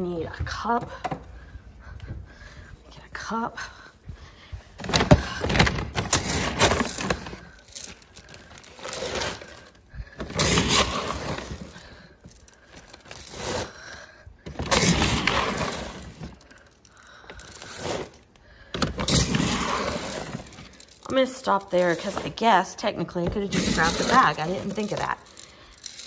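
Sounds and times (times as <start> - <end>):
plastic bag crinkling: 4.8 - 13.9, 14.5 - 22.4, 23.2 - 26.0
dry kibble pouring: 6.2 - 9.8, 12.3 - 13.6, 14.8 - 18.1, 23.4 - 26.0.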